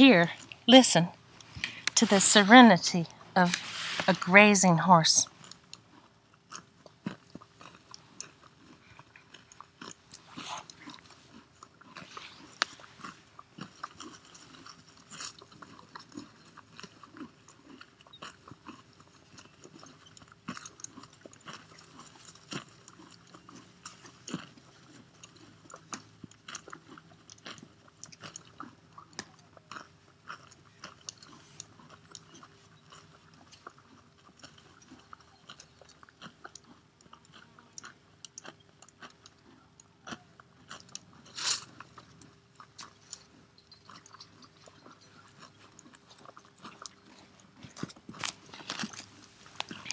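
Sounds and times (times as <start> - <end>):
horse tearing and chewing grass: 0.0 - 49.9.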